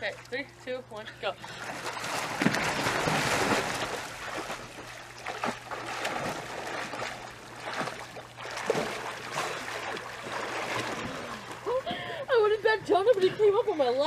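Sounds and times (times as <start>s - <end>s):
water lapping: 0.0s - 14.0s
water splashing from swimmers: 1.4s - 12.2s.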